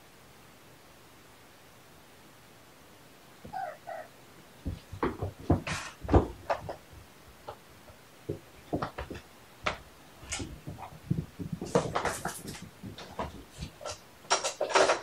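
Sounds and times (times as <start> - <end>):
kittens thumping and knocking: 4.6 - 7.6, 8.3 - 15.0.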